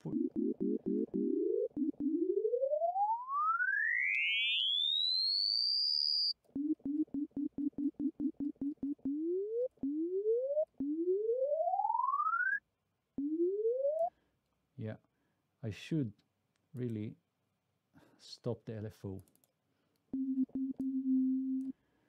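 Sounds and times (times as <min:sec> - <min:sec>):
short repeated low synth notes: 0:00.0 - 0:02.7
rising synth pitch sweeps: 0:00.0 - 0:06.3, 0:06.9 - 0:12.6, 0:13.2 - 0:14.1
synthesizer tone gliding upward: 0:00.0 - 0:06.3, 0:08.8 - 0:12.6, 0:13.2 - 0:14.1.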